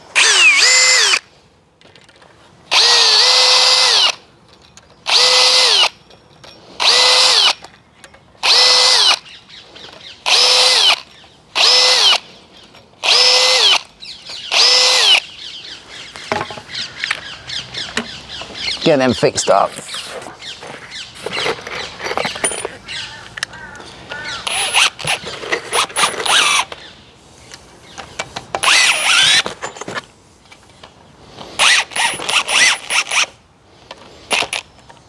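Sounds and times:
cordless drill boring into wood: 0.2 - 1.2, 2.7 - 4.2, 5.1 - 6.0, 6.8 - 7.6, 8.4 - 9.3, 10.2 - 11.0, 11.6 - 12.2, 13.0 - 13.8, 14.4 - 15.2, 24.5 - 26.7, 28.6 - 29.5, 31.6 - 33.3
handling noise: 16.1 - 26.9, 27.5 - 32.6.

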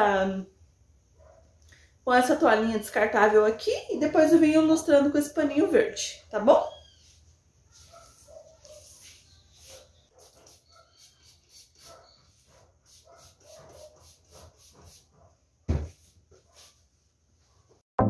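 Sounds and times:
cloth rubbing on stone: 7.7 - 15.2
louder thump: 15.7 - 16.0.

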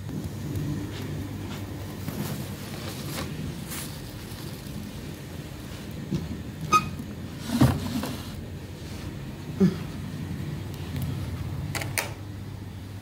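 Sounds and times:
rustling plastic bags: 1.9 - 8.4.

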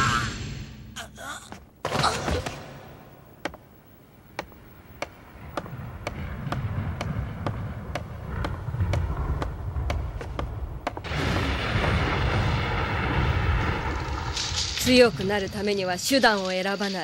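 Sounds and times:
low rumble: 4.2 - 16.0.

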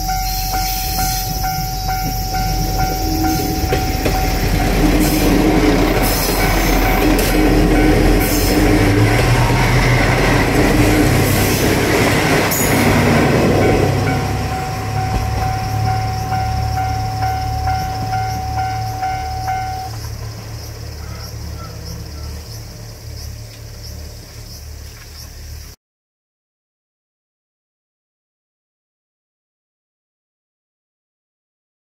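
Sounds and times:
level crossing bell ringing: 0.0 - 8.4, 12.6 - 20.0
train rail and wheel noise: 0.0 - 25.8.

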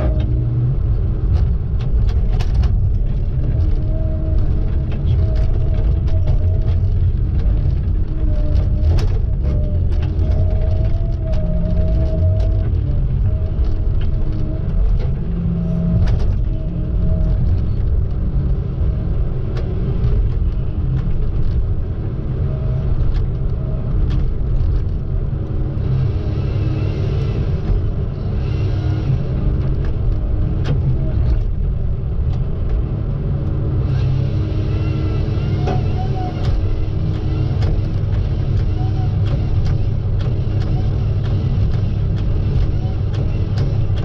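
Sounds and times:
diesel engine under load: 0.0 - 44.0
hydraulics working: 33.6 - 44.0.

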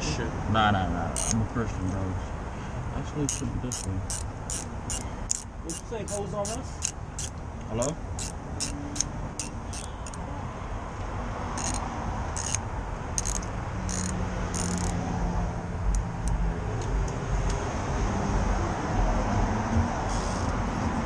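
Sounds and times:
traffic rumble: 0.0 - 21.0
car engine hum: 1.0 - 21.0.

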